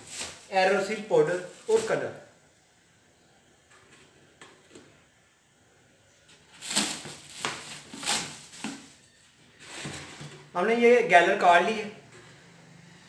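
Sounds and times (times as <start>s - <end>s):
plastic bag crinkling and rustling: 0.0s - 2.2s, 6.4s - 10.6s.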